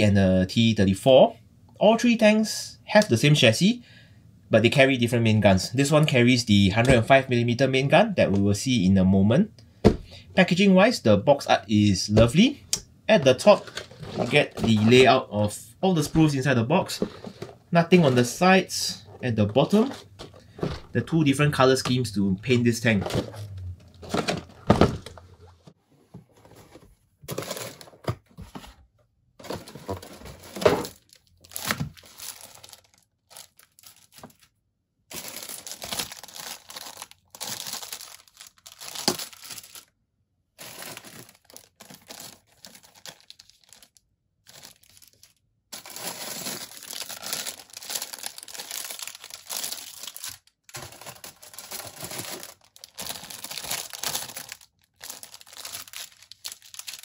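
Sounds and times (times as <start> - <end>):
plastic bags crinkling: 13.2 - 25.6, 26.6 - 28.2, 29.4 - 34.5, 35.1 - 39.9, 40.6 - 57.0.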